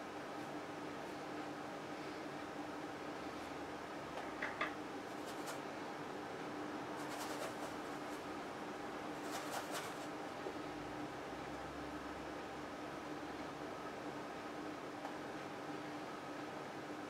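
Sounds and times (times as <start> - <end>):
low room hum: 0.0 - 17.0
paintbrush scrubbing on canvas: 7.0 - 8.2.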